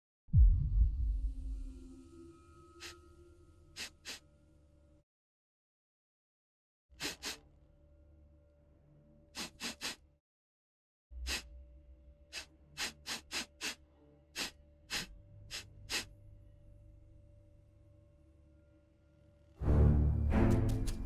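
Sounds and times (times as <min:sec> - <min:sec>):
man sniffing sharply: 0:03.8 - 0:04.2, 0:07.0 - 0:07.5, 0:09.4 - 0:10.0, 0:11.2 - 0:11.5, 0:12.3 - 0:13.8, 0:14.4 - 0:16.1.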